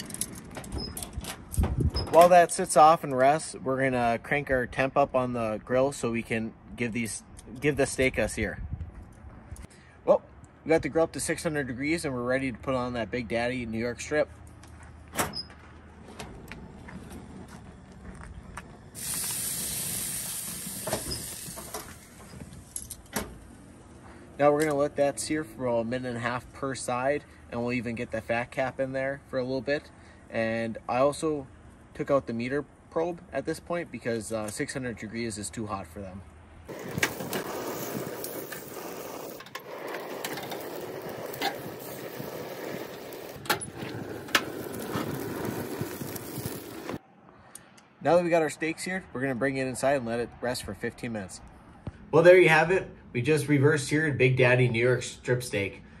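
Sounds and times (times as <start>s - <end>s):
steak sizzling on grill: 19.0s - 21.8s.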